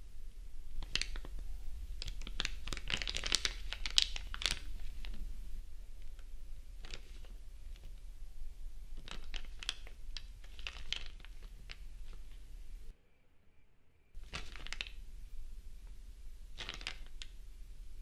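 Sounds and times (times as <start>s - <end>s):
paper rustling and crinkling: 0.8s - 5.3s, 6.8s - 8.0s, 9.0s - 12.5s, 14.2s - 15.0s, 16.5s - 17.4s.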